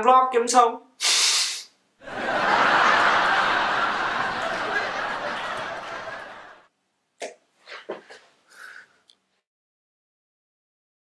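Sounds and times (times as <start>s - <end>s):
person sighing: 8.5s - 9.0s.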